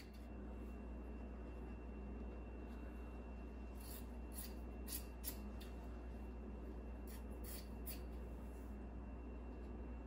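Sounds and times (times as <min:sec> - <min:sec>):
steady low hum: 0:00.0 - 0:10.0
scissors cutting cloth: 0:03.8 - 0:05.7, 0:07.0 - 0:08.2.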